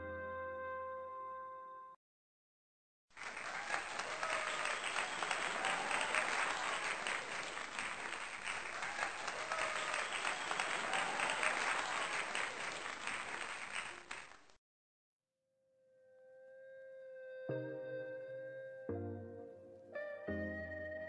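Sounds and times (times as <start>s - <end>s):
crowd applause: 3.2s - 14.6s.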